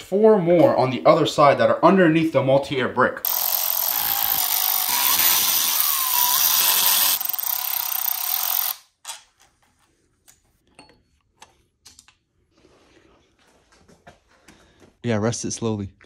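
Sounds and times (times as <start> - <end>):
electric ratchet running: 3.3 - 8.8.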